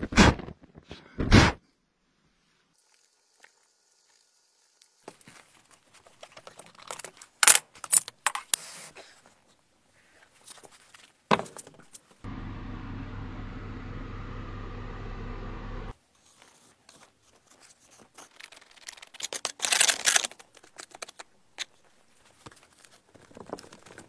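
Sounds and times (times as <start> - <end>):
low machine hum: 12.3 - 15.9.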